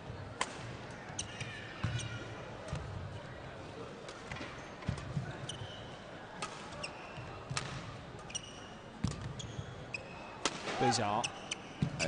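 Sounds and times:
shoes squeaking: 8.2 - 10.2, 11.2 - 12.0
racket hitting shuttlecock: 10.4 - 10.9.

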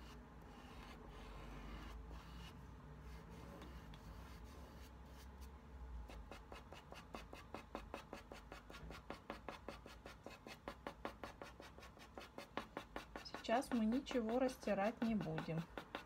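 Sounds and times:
pastel scratching on paper: 0.0 - 5.4, 6.1 - 16.0.

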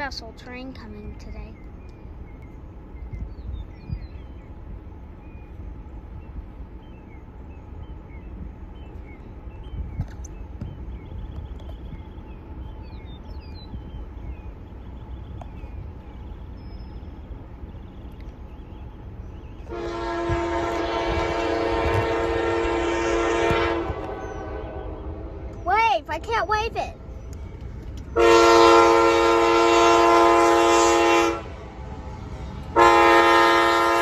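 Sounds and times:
low wind rumble: 0.0 - 34.0
bird chirps: 0.4 - 19.7, 24.0 - 28.3
train horn blowing: 19.6 - 25.6, 28.1 - 31.6, 32.7 - 34.0.

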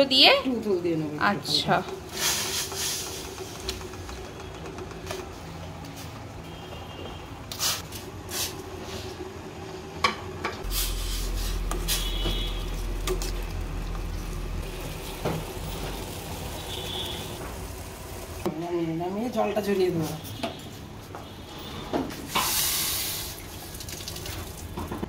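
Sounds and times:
steady low hum: 9.4 - 18.5.

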